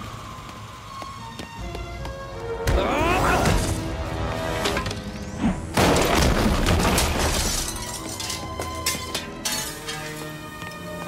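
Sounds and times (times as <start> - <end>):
shattering crash: 5.7 - 10.2.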